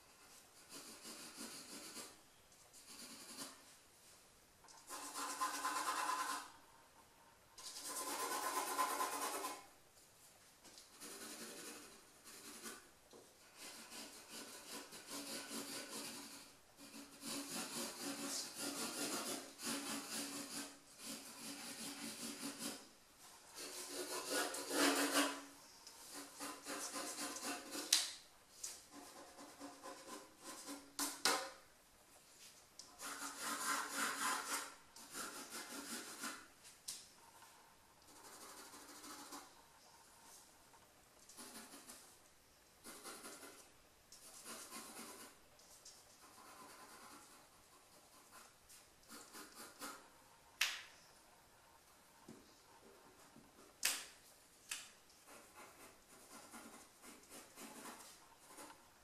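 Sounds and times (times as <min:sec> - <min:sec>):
pencil scratching on paper: 0:00.0 - 0:03.8, 0:04.8 - 0:06.6, 0:07.6 - 0:09.7, 0:10.8 - 0:28.0, 0:28.7 - 0:31.6, 0:32.9 - 0:36.6, 0:37.2 - 0:40.5, 0:41.3 - 0:42.2, 0:42.8 - 0:45.5, 0:46.2 - 0:50.5, 0:55.2 - 0:59.0.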